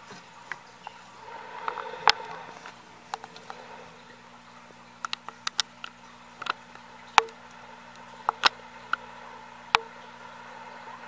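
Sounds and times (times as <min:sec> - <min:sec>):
lizard chewing clicks: 0:05.0 - 0:09.0.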